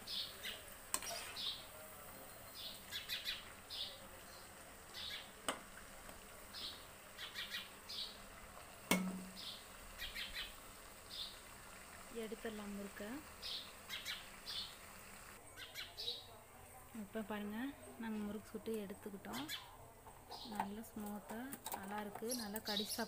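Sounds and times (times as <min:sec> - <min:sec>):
hiss of deep-frying in oil: 0:00.0 - 0:15.4
small bird chirping: 0:02.3 - 0:05.4, 0:06.5 - 0:08.2, 0:09.4 - 0:11.4, 0:13.4 - 0:14.8, 0:15.5 - 0:16.3.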